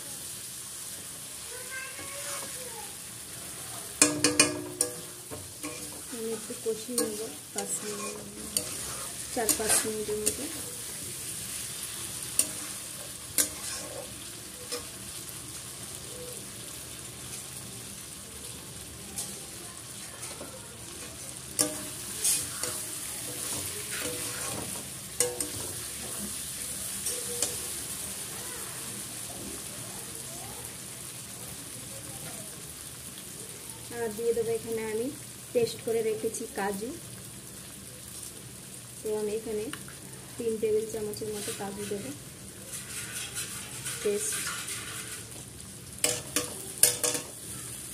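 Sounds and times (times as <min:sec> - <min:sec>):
chicken sizzling in a pan: 0:00.0 - 0:47.9
spatula stirring and scraping: 0:01.0 - 0:02.6, 0:03.3 - 0:15.2, 0:19.1 - 0:28.0, 0:41.1 - 0:47.5
spatula knocking against pan: 0:04.0 - 0:06.0.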